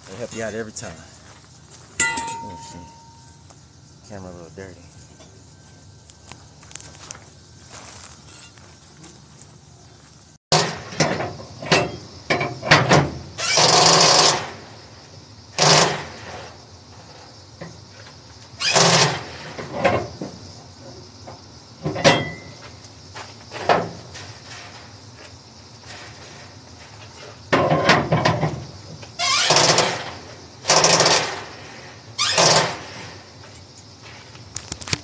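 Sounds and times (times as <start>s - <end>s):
sharp metallic clanks: 2.0s - 3.4s, 10.5s - 14.6s, 21.8s - 22.6s.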